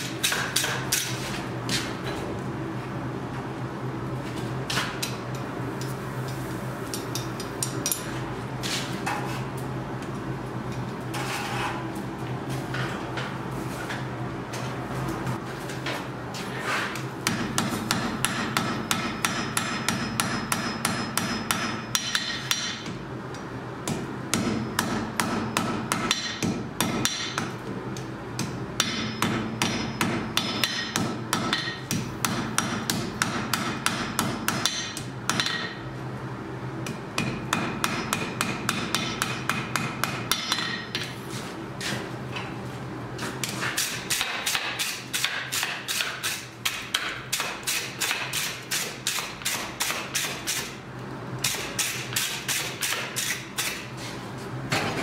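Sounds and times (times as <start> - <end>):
hammer striking iron on anvil: 0.0 - 1.2, 17.2 - 23.0, 23.8 - 27.5, 28.4 - 35.8, 36.8 - 41.2, 43.8 - 50.7, 51.4 - 53.8.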